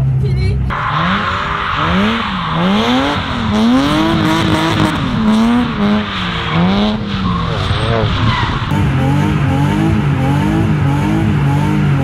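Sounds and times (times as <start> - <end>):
car engine revving: 0.6 - 12.0
tyre squeal: 0.7 - 8.7.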